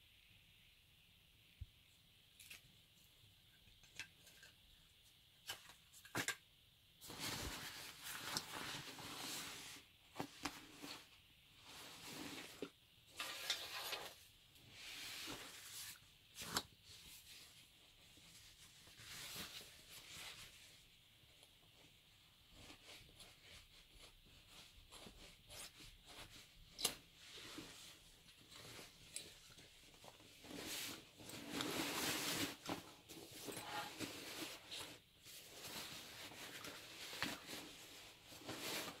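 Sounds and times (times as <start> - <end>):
fabric bag rustling: 27.3 - 39.0.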